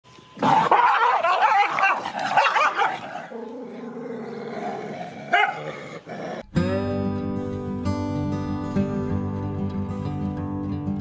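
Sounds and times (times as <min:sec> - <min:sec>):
dogs growling and barking: 0:00.4 - 0:06.5.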